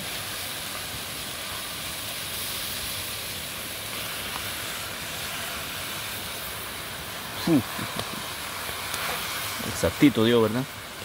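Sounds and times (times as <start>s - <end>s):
river flowing: 0.0s - 11.0s.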